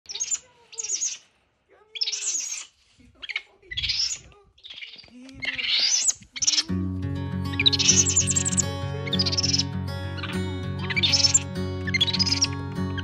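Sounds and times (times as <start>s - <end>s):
monkey squeaking calls: 0.1s - 1.3s, 2.0s - 6.7s, 10.2s - 12.5s.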